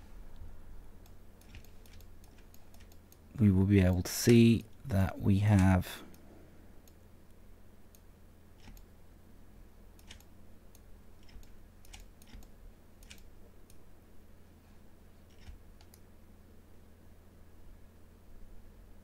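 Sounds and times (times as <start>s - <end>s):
low steady hum: 0.0s - 19.0s
mouse and keyboard clicks: 1.0s - 3.2s, 8.6s - 8.9s, 10.0s - 10.3s, 11.2s - 13.3s, 15.3s - 16.0s.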